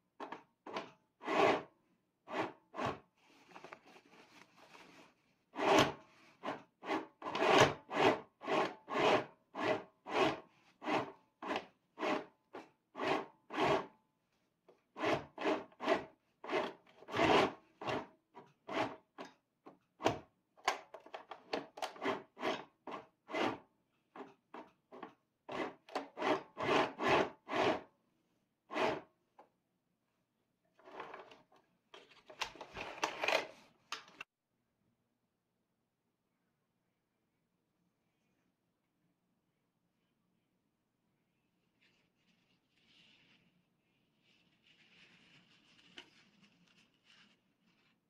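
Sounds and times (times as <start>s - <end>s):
sewing machine stitching denim: 5.6s - 13.9s, 15.0s - 19.0s, 21.5s - 23.6s, 25.5s - 27.9s.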